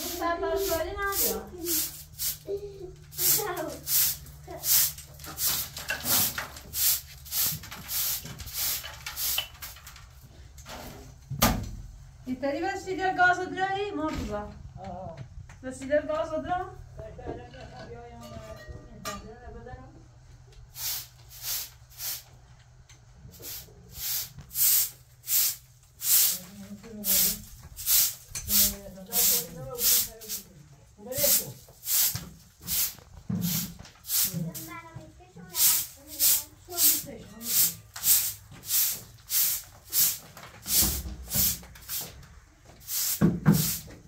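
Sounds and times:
hand broom sweeping cement floor: 0.0s - 11.2s, 20.6s - 22.6s, 23.2s - 44.0s.

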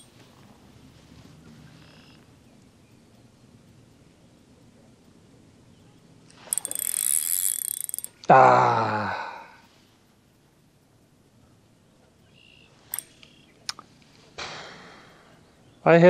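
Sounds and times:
fishing reel gears whirring: 6.3s - 8.3s, 12.9s - 13.2s.

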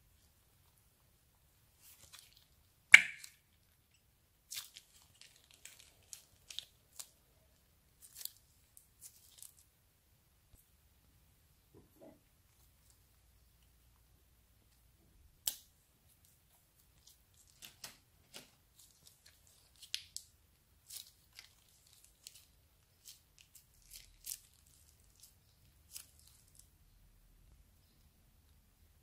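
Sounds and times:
plastic bag crackling: 4.5s - 7.2s.

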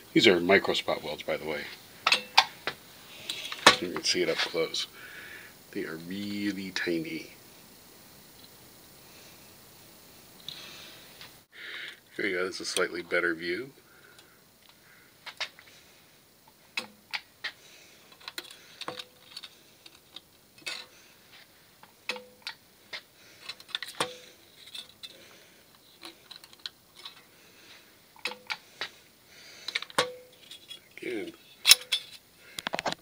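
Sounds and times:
metal sheet tapping electrodes: 2.0s - 4.0s, 29.7s - 30.8s.

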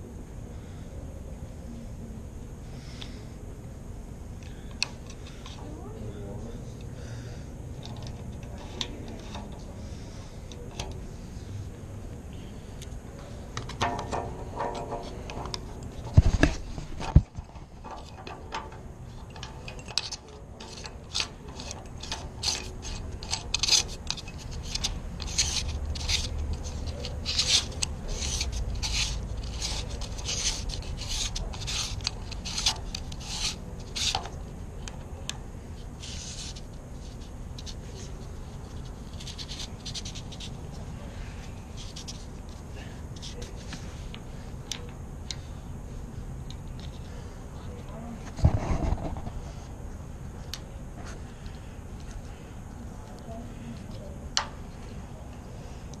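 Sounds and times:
metal cylinder rasping in thread: 13.8s - 34.3s.

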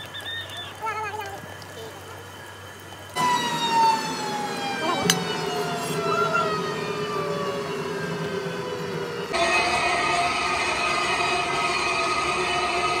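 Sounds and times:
motor whining down: 3.0s - 13.0s.

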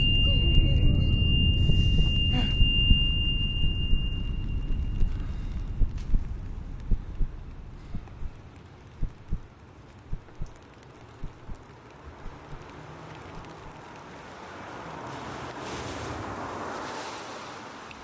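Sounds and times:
rushing noise: 0.0s - 9.4s
heartbeat thumps: 0.0s - 9.5s, 10.1s - 12.7s.

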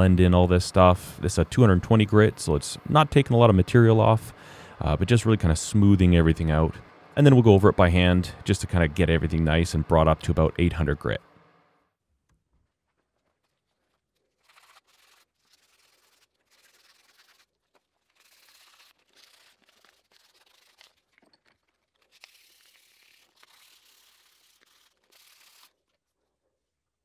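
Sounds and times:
sandpaper rubbing by hand: 14.3s - 21.2s, 22.1s - 25.8s.

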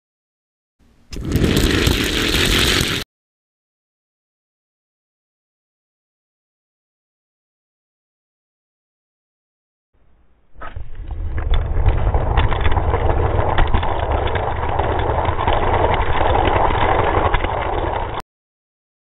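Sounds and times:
toy cars rattling on plastic track: 11.3s - 18.2s.

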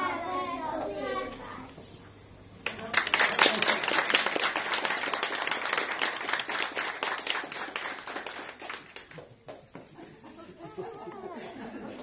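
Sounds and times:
audience applause: 2.7s - 9.7s.

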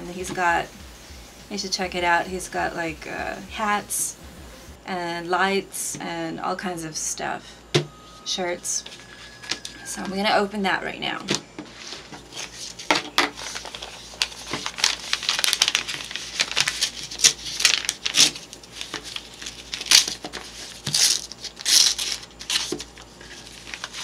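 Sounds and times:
paper crinkling and crumpling: 11.7s - 24.0s
envelope tearing: 12.3s - 24.0s.

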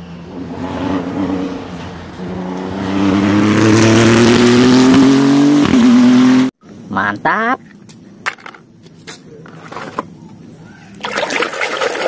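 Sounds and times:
racing car engine accelerating: 0.0s - 6.6s.

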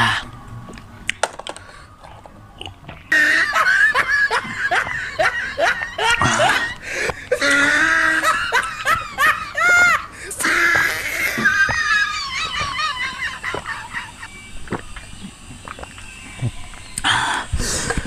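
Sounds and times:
person laughing: 3.1s - 14.5s
faint clicks: 13.5s - 18.0s.

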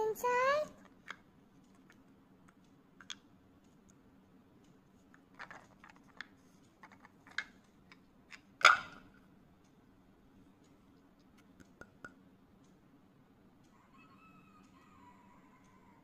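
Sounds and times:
wooden cubes clicking: 5.4s - 7.6s.

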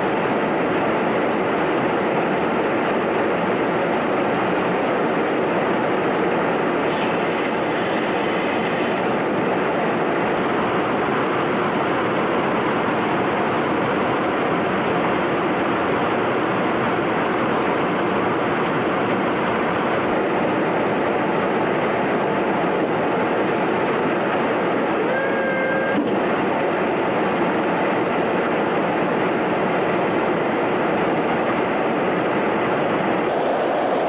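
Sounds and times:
airflow and jet engine roar: 0.0s - 34.0s
brief high hiss: 6.8s - 9.2s.

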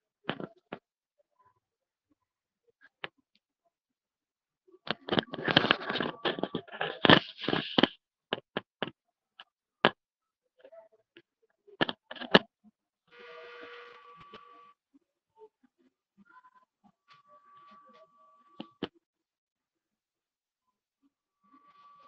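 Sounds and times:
rapid crackling and clicks: 4.9s - 9.0s
faint two-tone hum: 13.1s - 14.7s.

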